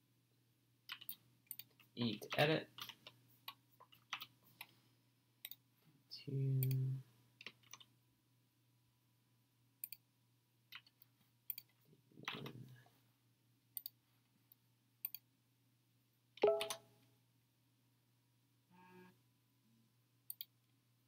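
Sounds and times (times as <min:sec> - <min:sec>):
keyboard and mouse clicks: 0:00.9 - 0:04.7, 0:06.6 - 0:06.8, 0:07.4 - 0:07.9, 0:10.7 - 0:12.6, 0:13.8 - 0:14.0, 0:15.0 - 0:15.3, 0:16.4 - 0:16.8, 0:20.3 - 0:20.6.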